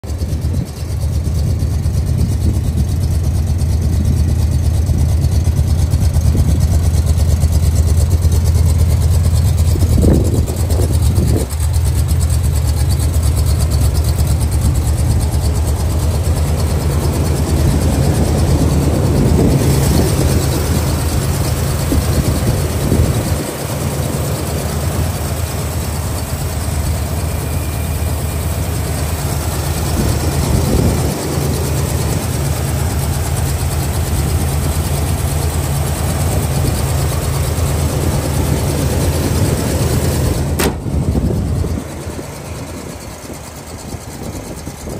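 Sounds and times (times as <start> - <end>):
engine idling: 0.0 - 44.9
brief thumps: 40.6 - 41.0.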